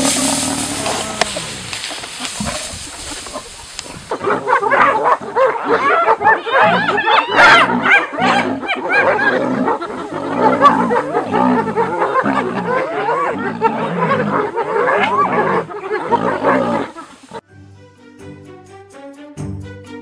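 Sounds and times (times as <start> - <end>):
hyenas giggling and whooping: 4.1 - 17.4.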